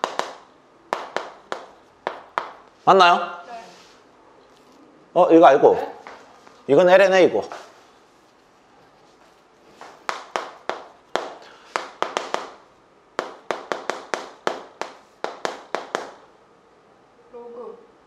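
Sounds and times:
chalk tapping on blackboard: 0.0 - 2.8, 9.2 - 16.2.

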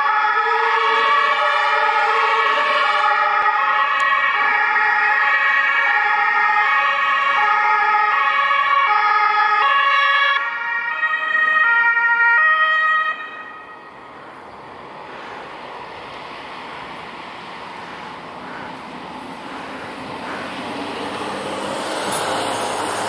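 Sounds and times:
two-tone emergency sirens: 0.0 - 23.0
vehicle engines and tyres: 0.0 - 23.0.

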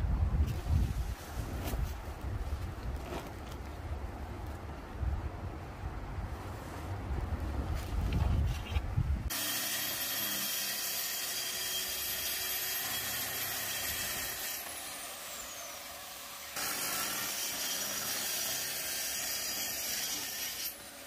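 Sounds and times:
wind buffeting microphone: 0.0 - 9.3
track saw cutting: 9.3 - 21.0.

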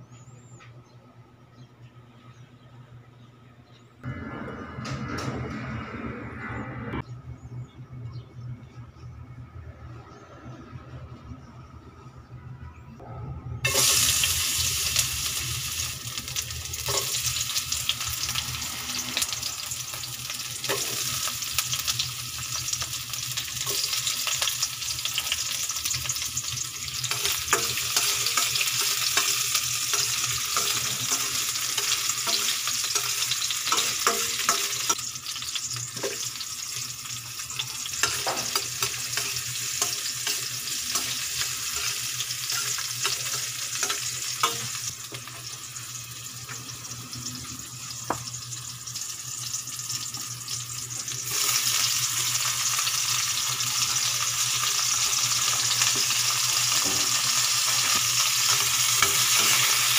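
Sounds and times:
garlic sizzling in hot oil: 13.6 - 59.9.

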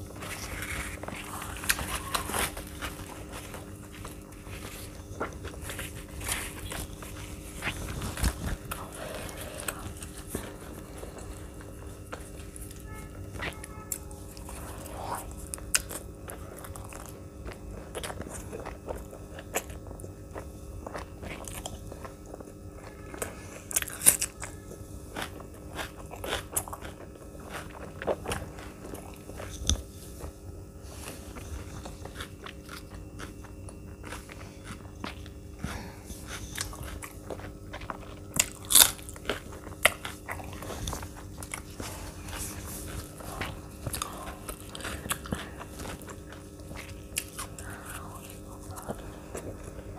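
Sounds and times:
person crunching and chewing: 0.0 - 49.9.

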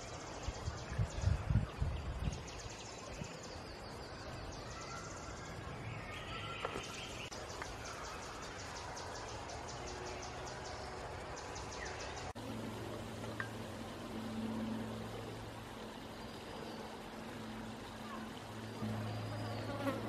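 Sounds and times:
bird calls: 2.6 - 10.8
low hum: 8.8 - 20.0.

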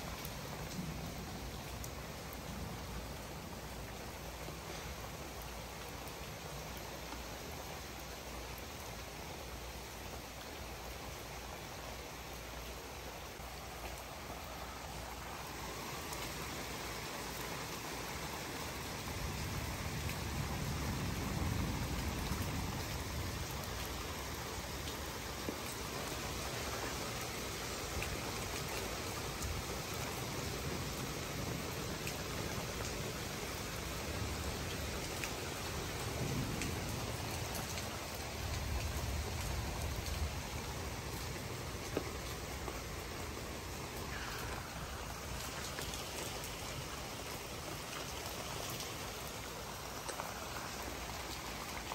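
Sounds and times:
raindrops ticking: 0.0 - 8.1, 13.4 - 51.9
heavy rain pouring: 0.0 - 51.9
distant thunder rumbling: 35.6 - 40.6.

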